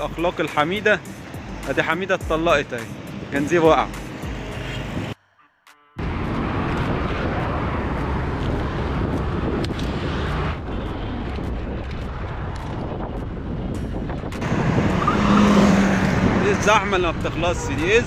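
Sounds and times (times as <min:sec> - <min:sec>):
heavy street traffic hum: 0:00.0 - 0:18.0
wind on microphone: 0:06.0 - 0:18.0.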